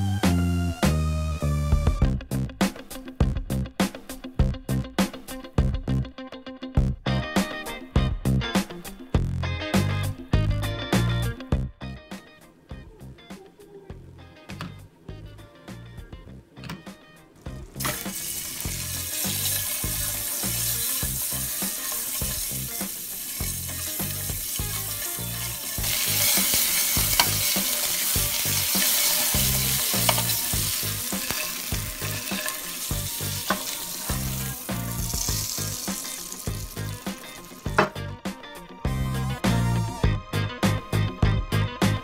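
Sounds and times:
music bass line: 0:00.0 - 0:03.8, 0:06.8 - 0:07.4, 0:08.0 - 0:08.6, 0:09.2 - 0:12.1, 0:17.5 - 0:42.0
eggs sizzling in hot oil: 0:17.8 - 0:38.0.

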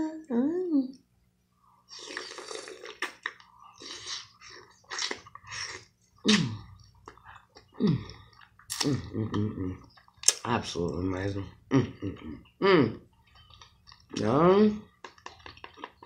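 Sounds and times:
wet chewing mouth sounds: 0:01.9 - 0:10.4
person humming: 0:11.7 - 0:13.0.

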